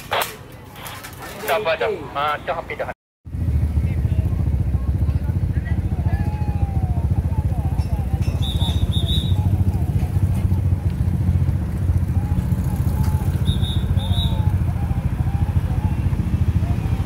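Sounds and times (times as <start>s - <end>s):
engine idling: 3.3s - 17.0s
faint voices: 3.7s - 17.0s.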